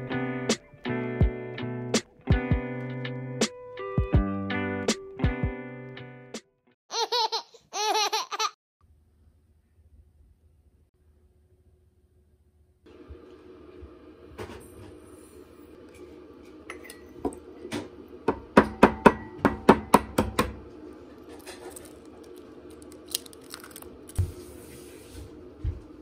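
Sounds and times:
eggs cracking into bowl: 21.4 - 24.2.

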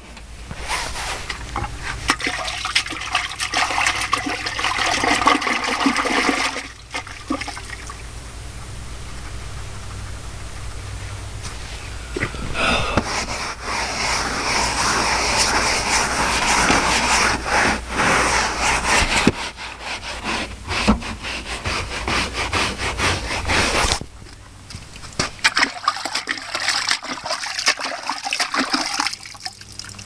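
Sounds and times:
brush scrubbing carpet: 0.6 - 7.6, 13.0 - 24.0, 25.5 - 29.3
brush splashing in water bucket: 0.8 - 8.0, 13.0 - 19.6, 24.7 - 30.0.

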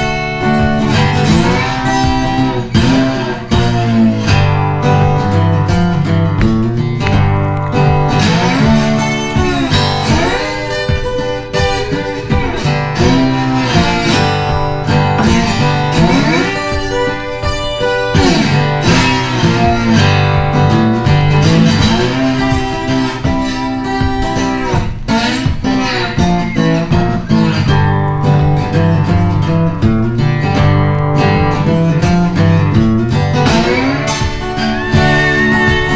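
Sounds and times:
plucked acoustic guitar: 0.0 - 35.9
steady bass line: 0.0 - 35.9.

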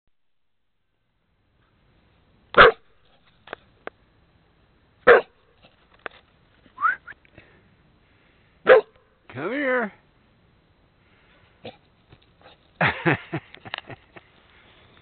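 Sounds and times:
dog barking: 2.6 - 2.8, 5.0 - 5.4, 8.6 - 9.0
dog yipping: 8.7 - 8.9.

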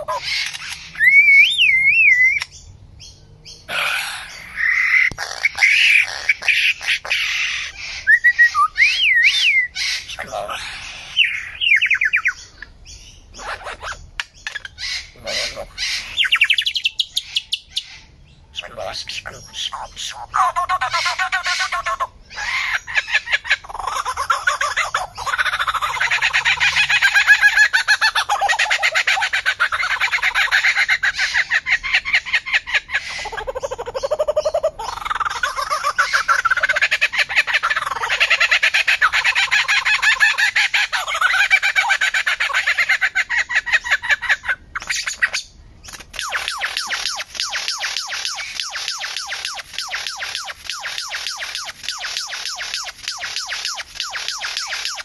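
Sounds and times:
harsh rasping bird calls: 0.0 - 55.0
warbling bird whistles: 0.2 - 2.5, 7.7 - 10.1, 44.8 - 55.0
sharp bird clicks: 0.2 - 2.7, 4.8 - 6.9, 13.8 - 15.0, 44.8 - 55.0.

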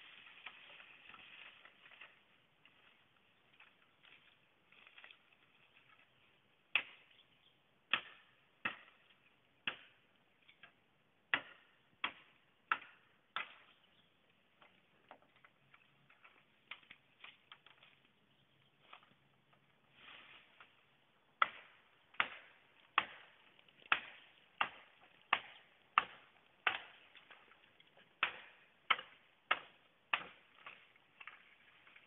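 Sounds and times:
machete chopping wood: 6.7 - 7.1, 7.9 - 10.0, 11.3 - 13.7, 21.4 - 27.5, 28.2 - 31.4.

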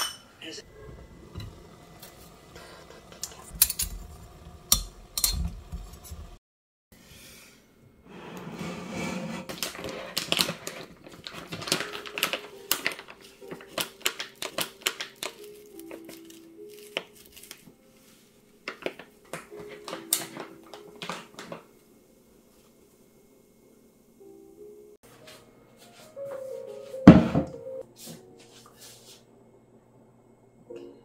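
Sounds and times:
soft background music: 11.0 - 31.0.

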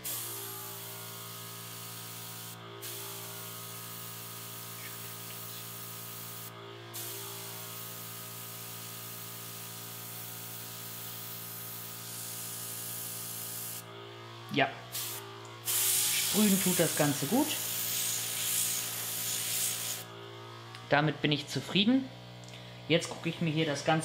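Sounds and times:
airbrush spraying hiss: 0.0 - 13.8, 14.9 - 20.1.

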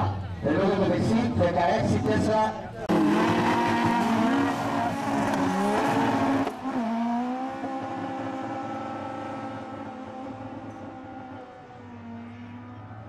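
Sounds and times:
drag cars accelerating hard: 2.9 - 13.0.

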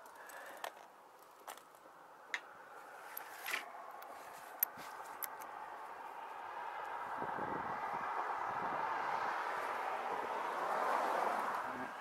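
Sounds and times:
rope gear clicks and scrapes: 3.0 - 5.5.

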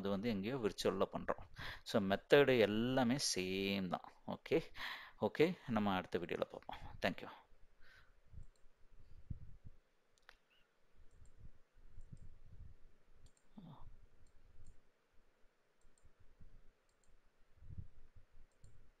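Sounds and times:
computer mouse clicks: 8.4 - 8.7, 10.1 - 12.4, 13.2 - 14.8, 15.8 - 16.2, 16.8 - 17.2, 18.5 - 18.8.

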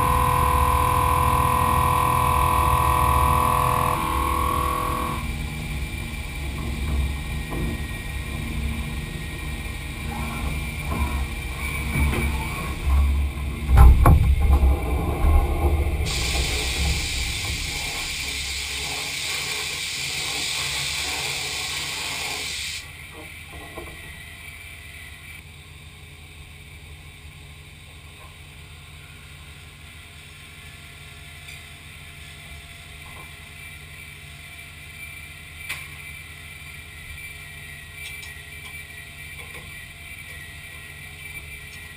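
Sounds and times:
machine low hum: 0.0 - 22.1
coolant spray hissing: 16.0 - 22.9.

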